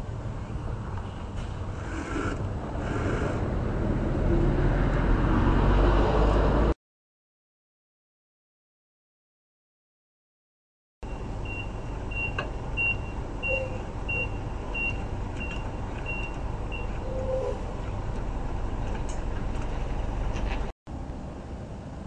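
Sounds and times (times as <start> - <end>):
vehicle rumble: 0.0 - 6.8, 11.0 - 22.0
reversing alarm beeps: 11.1 - 17.6.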